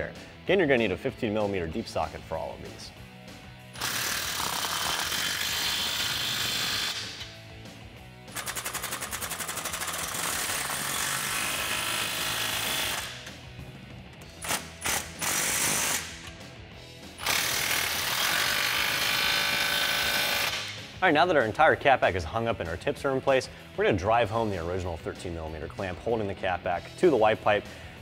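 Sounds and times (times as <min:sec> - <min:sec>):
impact wrench hammering: 0:03.8 - 0:07.3, 0:08.3 - 0:13.3, 0:14.2 - 0:16.4, 0:17.2 - 0:20.8.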